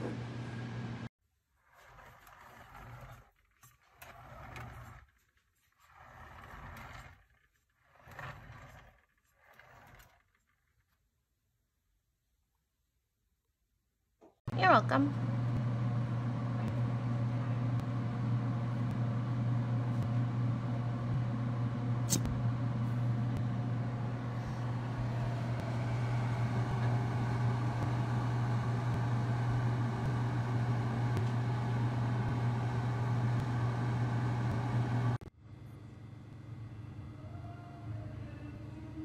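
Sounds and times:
low mechanical hum: 0.0s - 1.1s, 14.5s - 39.0s
sharp click: 22.1s - 22.4s.

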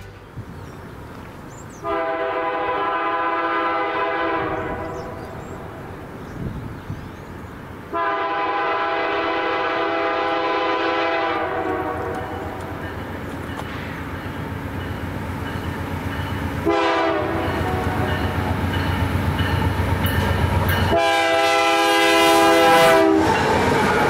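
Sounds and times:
train rumbling: 0.0s - 24.0s
locomotive air horn blasts: 1.8s - 5.2s, 7.9s - 12.6s, 16.6s - 18.6s, 20.9s - 23.4s.

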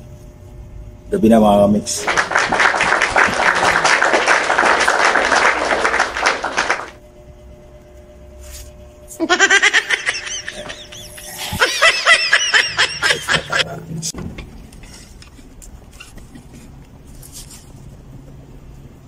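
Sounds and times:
faint steady hum: 0.0s - 19.0s
high-pitched giggling: 9.2s - 13.8s
burst of laughing: 9.3s - 13.8s.

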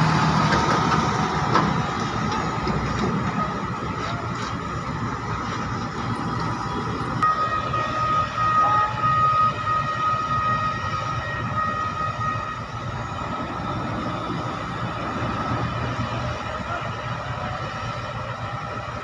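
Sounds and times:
diesel engines rumbling: 0.0s - 19.0s
high warning alarm beeps: 7.2s - 13.6s.

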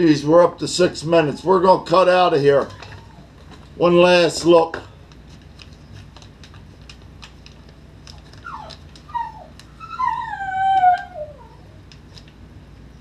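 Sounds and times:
dog whining: 2.6s - 3.4s, 8.3s - 11.9s
plastic bag crinkling: 2.6s - 9.9s.

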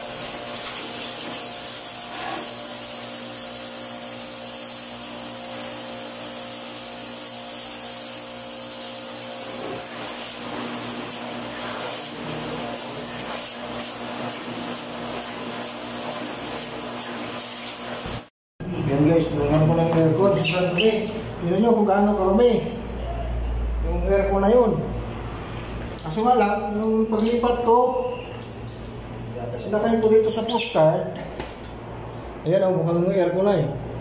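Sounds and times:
water jet spraying hiss: 0.0s - 18.3s
pressure washer motor humming: 0.0s - 22.7s.

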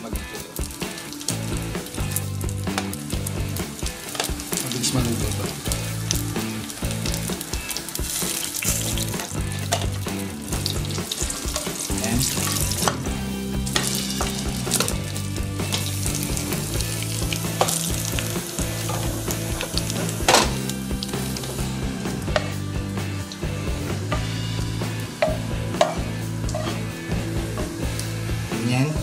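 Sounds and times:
meat sizzling in a frying pan: 0.0s - 28.5s.

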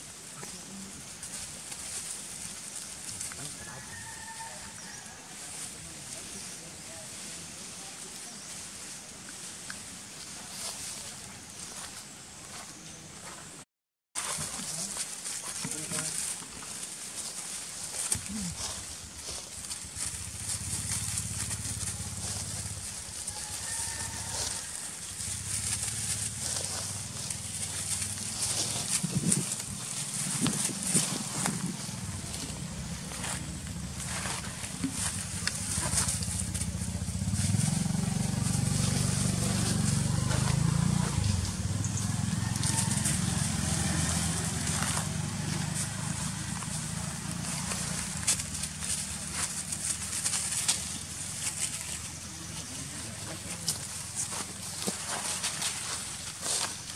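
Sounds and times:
rustling of dry leaves: 0.0s - 13.6s, 14.2s - 56.9s
low engine hum: 18.1s - 56.9s.

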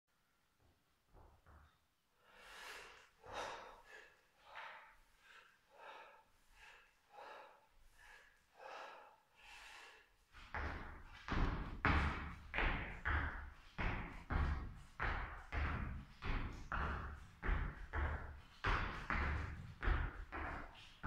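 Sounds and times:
man breathing quietly: 2.1s - 11.1s.

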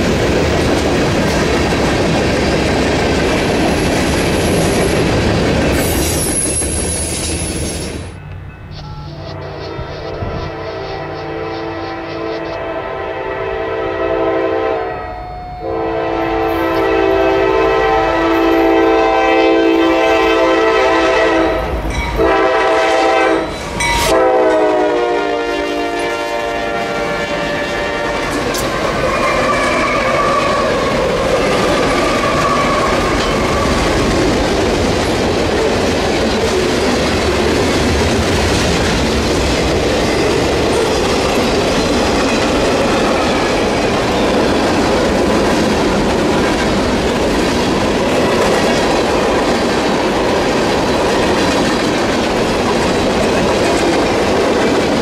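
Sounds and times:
train cars rumbling by: 0.0s - 55.0s
locomotive air horn blowing: 9.1s - 28.3s.

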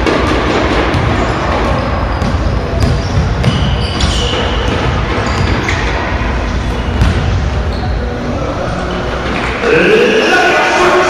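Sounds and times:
basketball bouncing on hardwood: 0.9s - 5.8s, 7.0s - 7.4s
sneaker squeaks: 0.9s - 9.6s.

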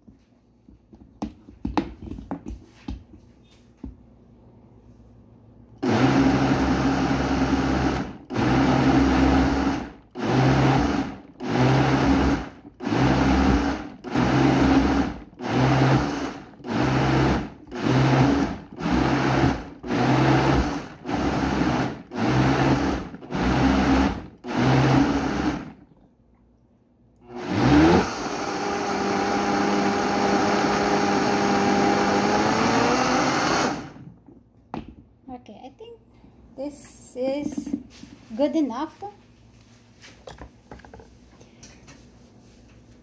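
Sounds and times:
blender motor pulsing: 5.8s - 25.8s, 27.2s - 34.1s.

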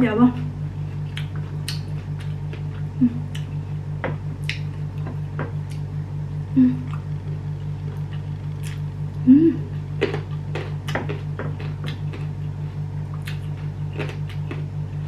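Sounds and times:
steady low hum: 0.0s - 15.0s
wet chewing smacks: 1.0s - 3.6s, 13.1s - 14.6s
person humming mm: 3.0s - 3.4s, 6.5s - 7.0s, 9.2s - 9.8s.

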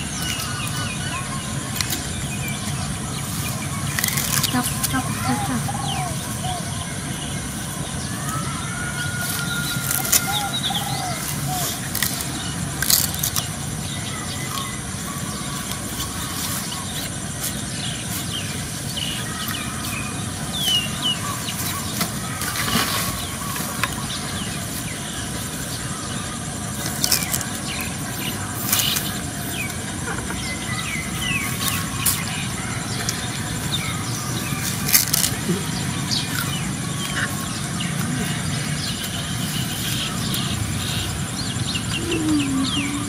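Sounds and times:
outdoor background noise: 0.0s - 43.0s.

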